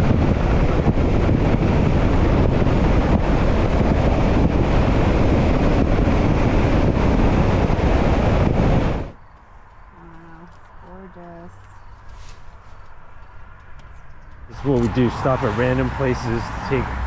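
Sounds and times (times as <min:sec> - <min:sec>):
wind rushing over microphone: 0:00.0 - 0:09.2, 0:12.9 - 0:17.0.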